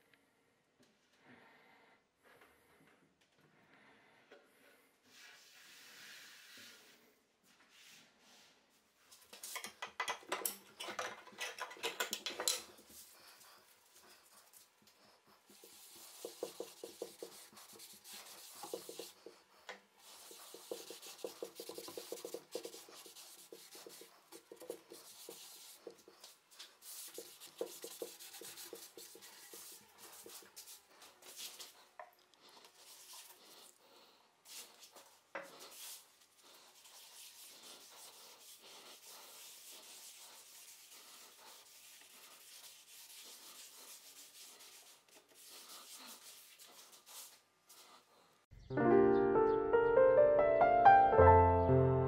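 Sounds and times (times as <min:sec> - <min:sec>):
cloth rag rubbing wood: 0:12.9 - 0:31.9, 0:34.5 - 0:48.0.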